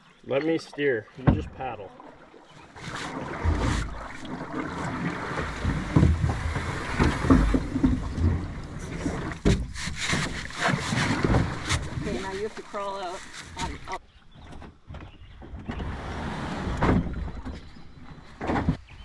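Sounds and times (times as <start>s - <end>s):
paddle splashing in water: 0.2s - 14.0s.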